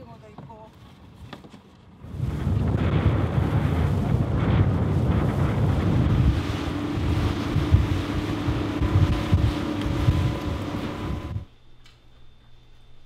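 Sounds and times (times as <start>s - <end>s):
wind buffeting microphone: 1.9s - 11.4s
boat engine running: 2.1s - 11.6s
water rushing: 3.3s - 11.4s.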